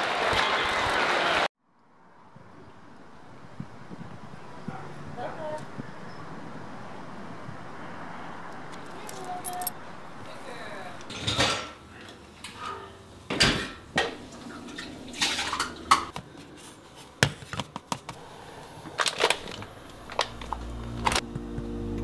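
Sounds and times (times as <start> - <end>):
dishes pot and utensils clinking: 11.1 - 16.2.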